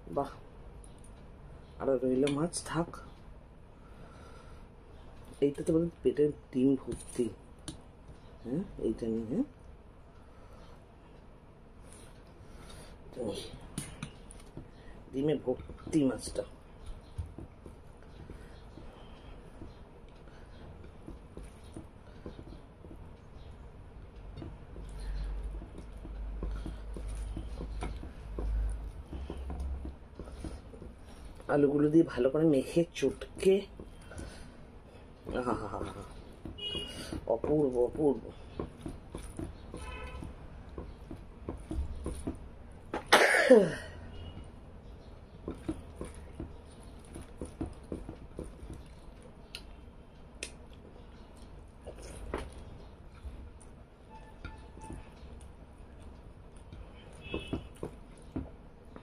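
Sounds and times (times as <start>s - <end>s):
fingers mixing food on plate: 5.2s - 43.1s, 43.8s - 59.0s
chewing and mouth clicks: 45.6s - 49.8s
chewing with wet mouth clicks: 48.5s - 57.2s.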